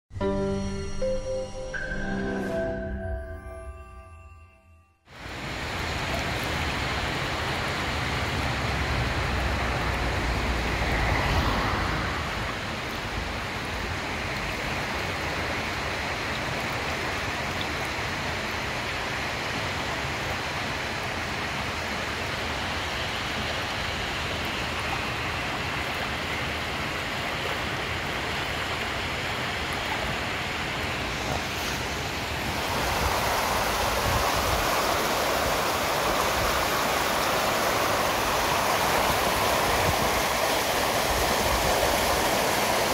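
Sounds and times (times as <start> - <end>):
stream rushing over stones: 5.1 - 42.9.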